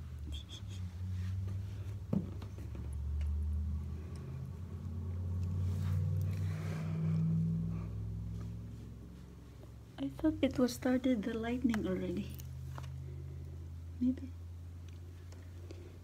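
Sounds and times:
cars driving past: 0:00.1 - 0:10.9.

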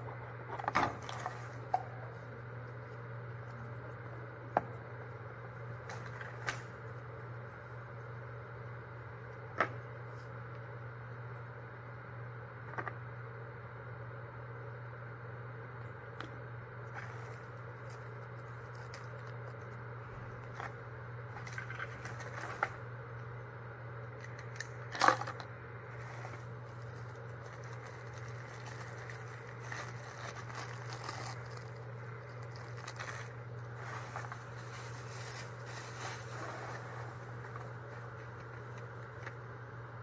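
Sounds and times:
steady low hum: 0:00.0 - 0:40.0
paper bag and wrapping rustling: 0:16.9 - 0:22.8, 0:25.9 - 0:39.4.

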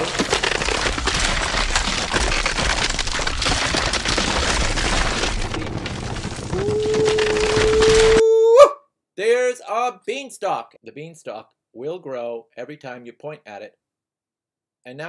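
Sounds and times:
ground cracking and breaking: 0:00.0 - 0:08.2.

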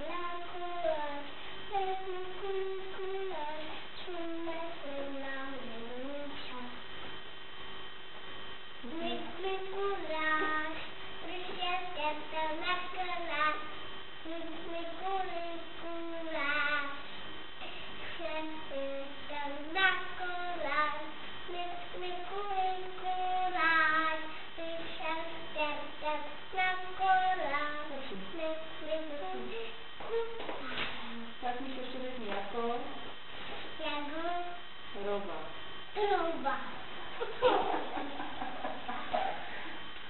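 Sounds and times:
boy singing: 0:00.0 - 0:06.8, 0:08.8 - 0:17.0, 0:18.2 - 0:31.0, 0:33.8 - 0:34.6
faint mains hum: 0:00.0 - 0:40.0.

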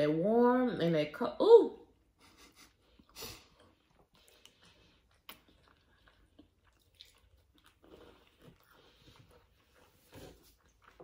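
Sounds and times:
people chewing cookies: 0:02.0 - 0:11.0.

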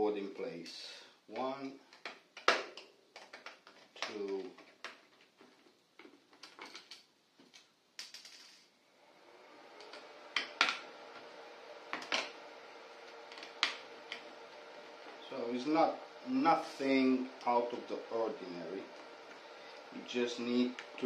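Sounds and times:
steady fixed-pitch hum: 0:08.8 - 0:21.0.

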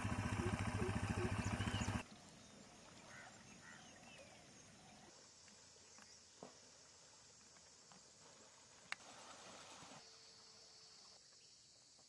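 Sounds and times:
small engine chugging: 0:00.0 - 0:02.2
faint bird chirps: 0:00.2 - 0:05.1.

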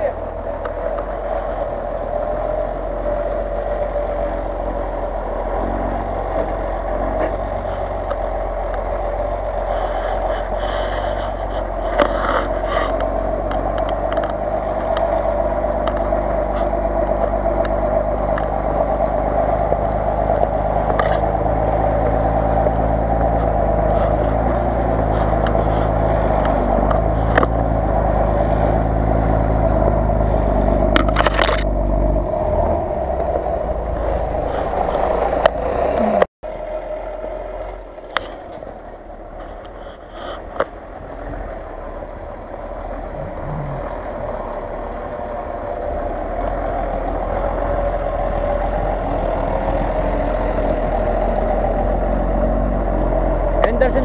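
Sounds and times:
engine revving under load: 0:00.0 - 0:54.0.

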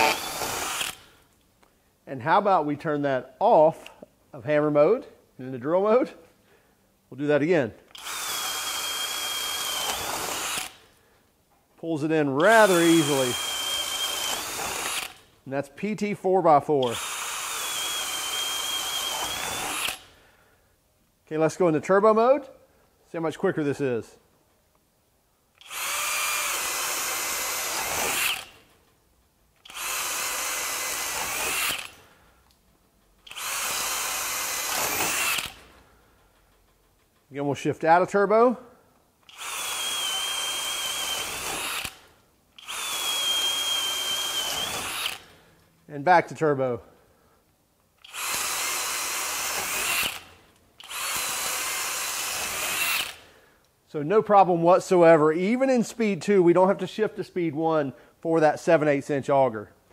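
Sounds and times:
drill bit cutting wood: 0:00.0 - 0:01.0, 0:07.9 - 0:10.8, 0:12.4 - 0:15.2, 0:16.8 - 0:20.1, 0:25.6 - 0:28.6, 0:29.6 - 0:32.0, 0:33.3 - 0:35.6, 0:39.3 - 0:42.0, 0:42.6 - 0:45.3, 0:48.0 - 0:53.2
drill motor whine: 0:00.0 - 0:01.1, 0:07.9 - 0:10.8, 0:12.4 - 0:15.2, 0:16.9 - 0:20.0, 0:25.6 - 0:28.6, 0:29.7 - 0:32.0, 0:33.3 - 0:35.6, 0:39.3 - 0:42.0, 0:42.6 - 0:45.3, 0:48.0 - 0:53.2.

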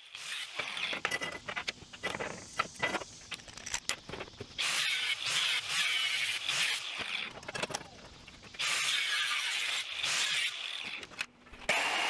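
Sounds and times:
angle grinder cutting steel: 0:04.6 - 0:07.4, 0:08.6 - 0:11.1.

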